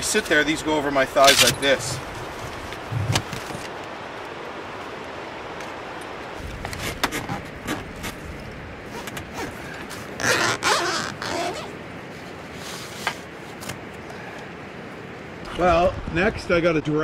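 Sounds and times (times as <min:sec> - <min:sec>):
outdoor hiss: 0:00.0 - 0:17.0
nylon rustling: 0:06.4 - 0:13.7.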